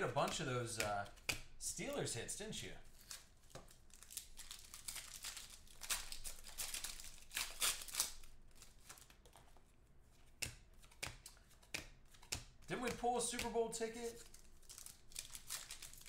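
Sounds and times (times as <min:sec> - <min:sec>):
cards tapping: 0:00.1 - 0:01.5, 0:10.2 - 0:14.4
foil wrapper crinkling and tearing: 0:02.9 - 0:09.4, 0:13.9 - 0:16.0.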